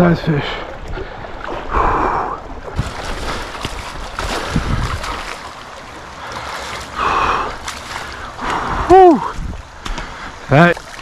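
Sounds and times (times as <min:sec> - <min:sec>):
river water splashing: 0:00.0 - 0:11.0
wind on microphone: 0:01.5 - 0:05.3, 0:08.5 - 0:09.7.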